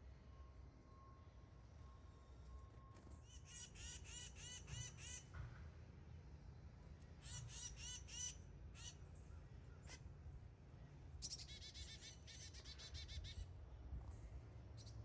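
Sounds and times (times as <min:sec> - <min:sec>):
songbird calling and chattering: 0:11.2 - 0:13.4.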